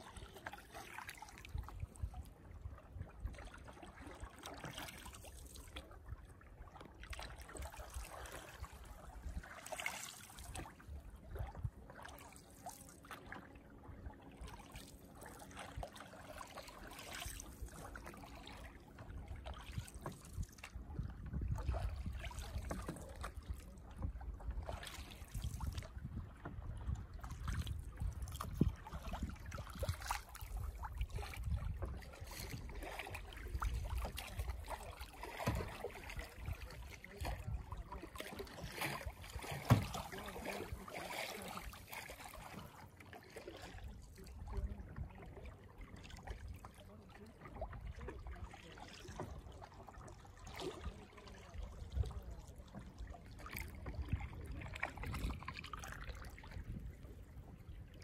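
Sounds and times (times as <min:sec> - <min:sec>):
small water splashes: 0:00.0 - 0:58.0
water lapping against canoe: 0:00.0 - 0:58.0
wind rumble on microphone: 0:01.4 - 0:03.8, 0:07.8 - 0:09.5, 0:10.5 - 0:11.9, 0:18.6 - 0:40.8, 0:43.8 - 0:45.4, 0:50.8 - 0:58.0.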